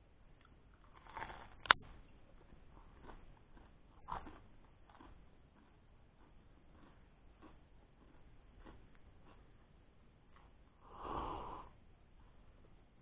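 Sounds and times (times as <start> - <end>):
person chewing bread: 0.4 - 10.8.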